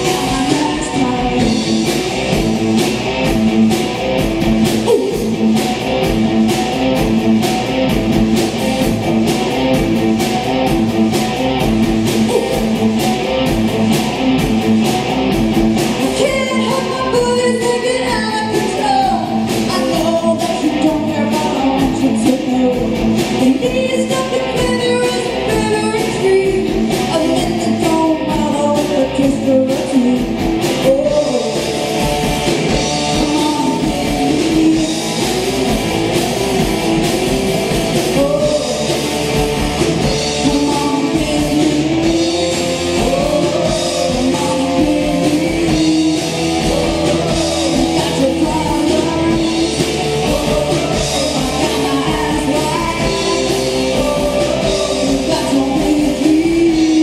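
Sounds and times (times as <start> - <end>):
person singing: 0.0 - 2.0, 4.8 - 5.4, 12.1 - 12.9, 15.9 - 31.8, 32.7 - 35.6, 37.9 - 57.0
distorted electric guitars: 0.0 - 57.0
drum kit: 0.0 - 57.0.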